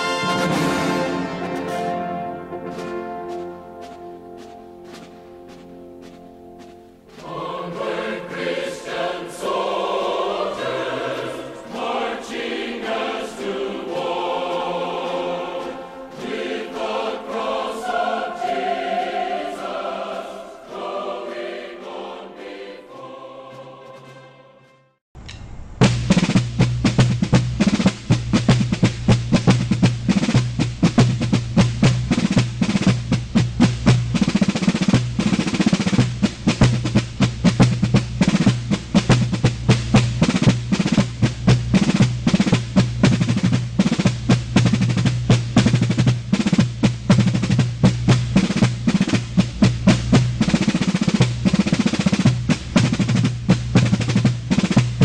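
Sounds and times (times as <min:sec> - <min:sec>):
snare drum rolls: 0:00.0 - 0:19.8, 0:25.2 - 0:55.0
steady low tone: 0:25.2 - 0:34.3.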